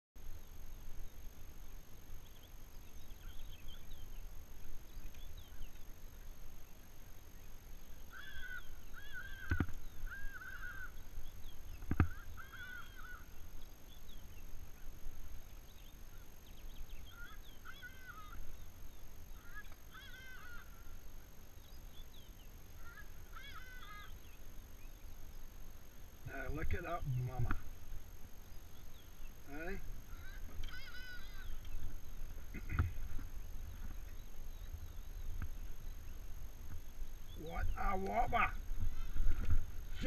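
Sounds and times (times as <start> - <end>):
bird calling repeated notes: 8.0 - 13.4, 16.0 - 21.1, 21.7 - 24.5, 28.6 - 39.2.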